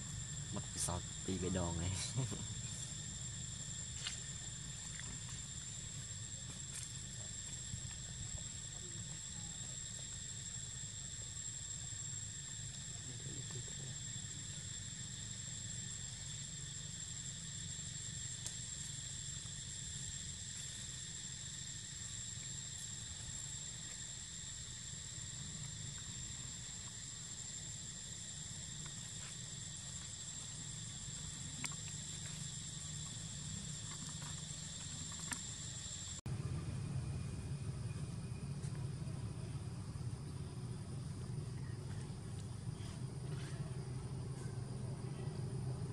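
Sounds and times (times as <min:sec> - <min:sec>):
shrill insect chorus: 0:00.0 - 0:45.9
low steady rumble: 0:30.0 - 0:45.9.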